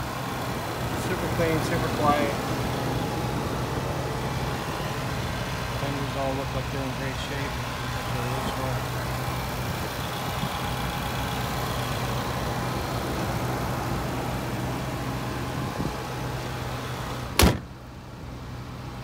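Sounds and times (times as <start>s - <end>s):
car engine idling: 0.0s - 19.0s
car hood slamming shut: 17.3s - 17.8s.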